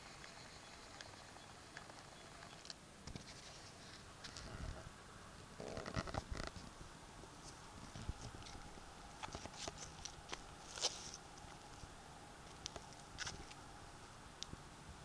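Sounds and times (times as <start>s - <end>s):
footsteps crunching on dry leaves: 9.2s - 11.8s.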